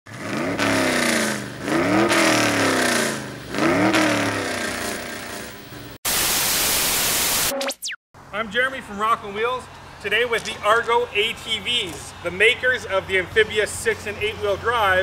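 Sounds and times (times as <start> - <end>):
engine revving hard: 0.1 - 5.6
tv static hiss: 6.1 - 7.8
falling electronic tone: 6.1 - 8.0.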